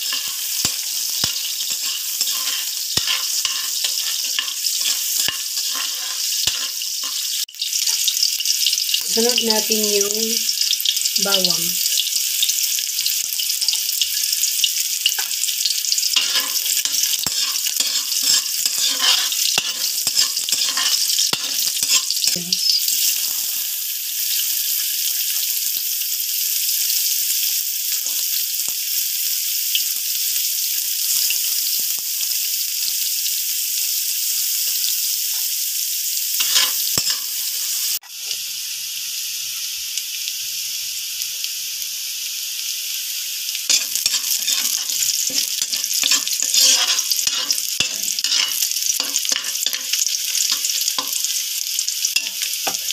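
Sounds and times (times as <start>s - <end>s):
stirring taps and scrapes in wok: 0.0s - 8.1s, 15.0s - 22.4s, 36.4s - 38.4s, 43.7s - 51.4s
aromatics sizzling in hot oil: 0.0s - 52.9s.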